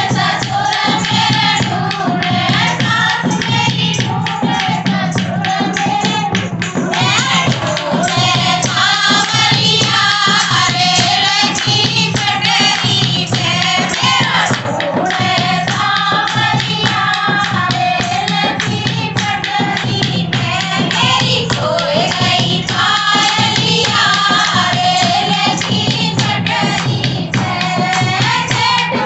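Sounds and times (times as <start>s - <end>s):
fast percussive beat: 0.0s - 29.0s
women singing in chorus: 0.0s - 29.0s.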